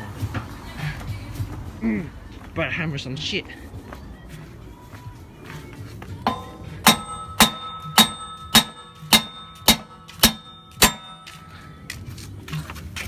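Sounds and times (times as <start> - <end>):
hammer striking metal: 6.2 - 12.0.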